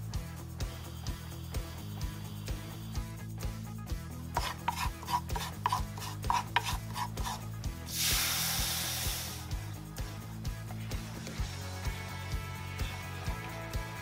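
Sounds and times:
soft background music with beat: 0.0s - 14.0s
wooden spoon scraping a pan: 4.3s - 7.4s
loud hiss of liquid in hot pan: 7.8s - 9.6s.

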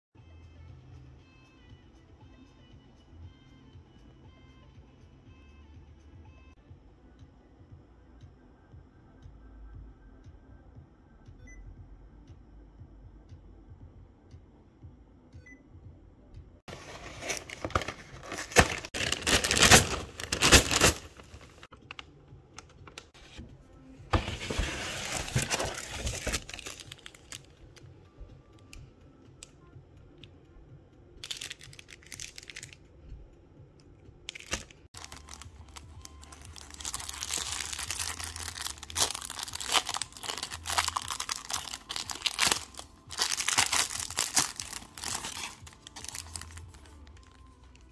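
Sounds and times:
plastic packaging crinkling: 16.7s - 21.7s, 24.2s - 27.5s, 34.3s - 47.4s.

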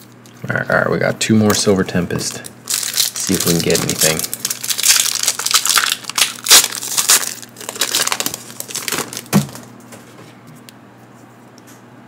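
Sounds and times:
foil wrapper tearing and crinkling: 2.6s - 9.7s.

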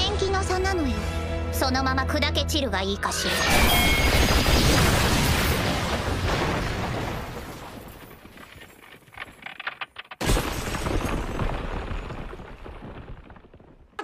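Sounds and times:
crystal shattering crash: 3.3s - 8.3s.

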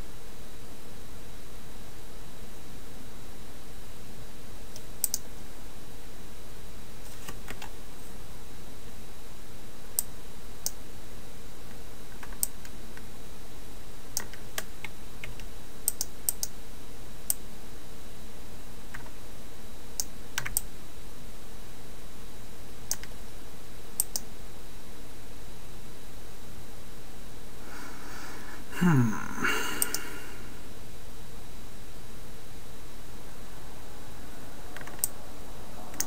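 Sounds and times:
background hiss: 0.0s - 36.0s
mouse and keyboard clicks: 34.8s - 35.1s.

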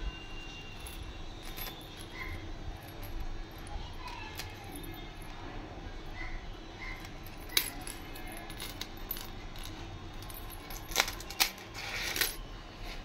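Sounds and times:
anklet chains and bells jingling: 0.1s - 12.5s
sharp metallic clinks: 0.6s - 5.4s, 6.8s - 12.4s.

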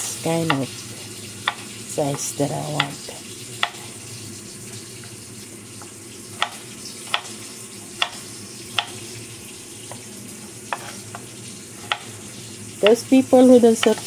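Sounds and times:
knife chopping on wooden board: 3.6s - 3.8s, 6.4s - 7.3s, 8.0s - 8.2s, 8.8s - 9.0s, 10.7s - 12.2s.

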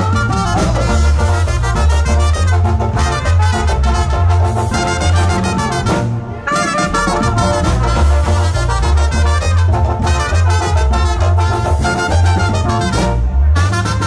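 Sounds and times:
heavy bass line: 0.0s - 14.0s
saxophone: 0.0s - 14.0s
trumpet: 0.0s - 14.0s.

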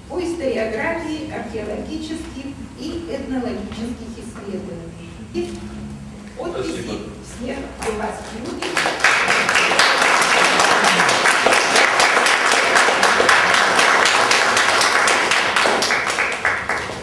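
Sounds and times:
audience applauding: 8.5s - 17.0s.

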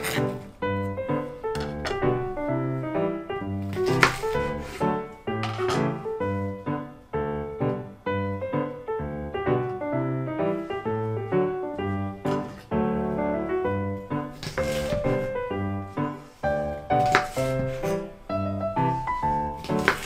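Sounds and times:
piano music: 0.0s - 20.0s
knife striking cutting board: 3.7s - 4.8s, 17.0s - 17.7s, 19.6s - 20.0s.

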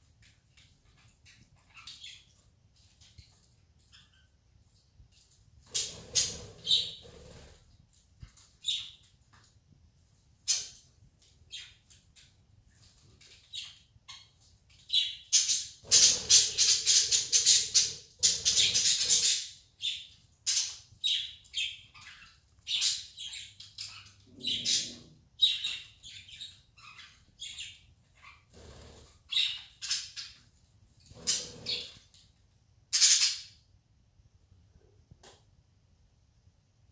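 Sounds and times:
budgerigars chirping: 5.7s - 7.5s, 15.0s - 30.3s, 31.1s - 32.0s.

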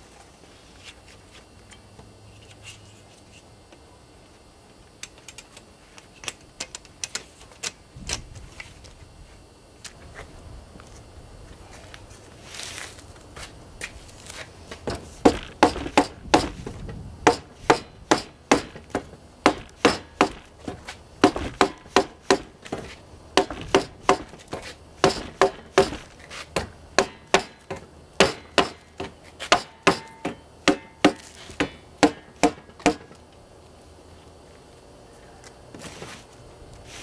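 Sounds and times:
rubber mallet knocking metal rail: 14.9s - 16.6s, 17.3s - 20.4s, 21.2s - 22.8s, 25.0s - 33.1s.

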